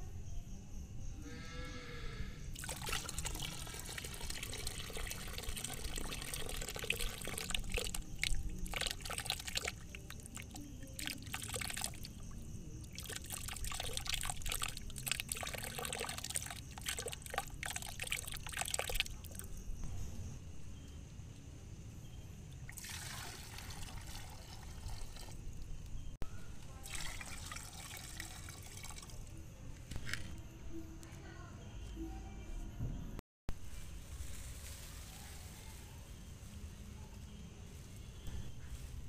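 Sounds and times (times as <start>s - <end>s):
water splashing and trickling: 2.5s - 19.9s, 22.5s - 30.4s.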